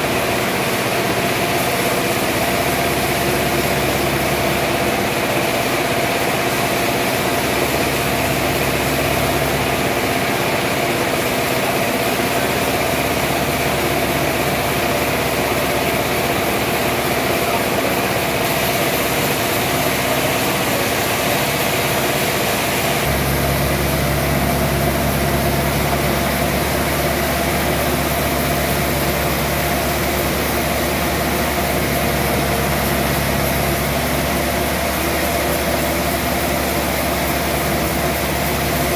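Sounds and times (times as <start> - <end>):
band sawmill humming: 0.0 - 38.9
deep low hum: 23.0 - 35.1.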